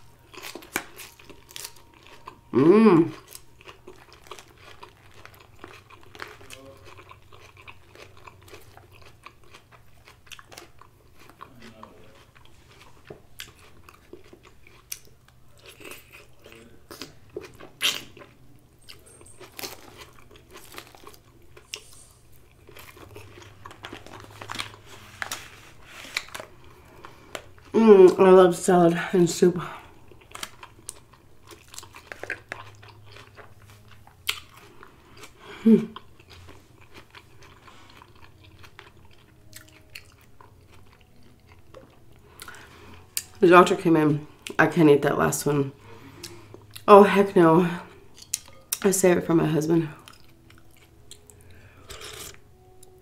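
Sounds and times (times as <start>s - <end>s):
person chewing crisp lettuce: 0.0s - 43.4s, 45.8s - 48.9s, 50.0s - 53.0s
short hummed vocal sound: 2.5s - 3.1s.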